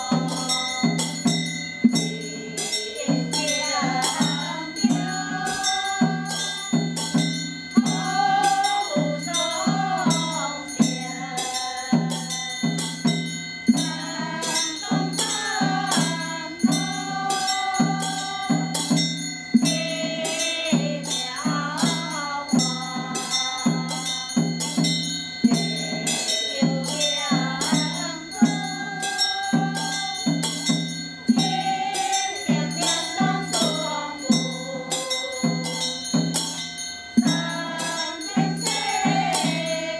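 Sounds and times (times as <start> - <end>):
women chanting in unison: 0.0 - 36.6, 37.2 - 39.9
small cymbal ringing: 0.0 - 39.9
small hand bells ringing: 0.0 - 39.9.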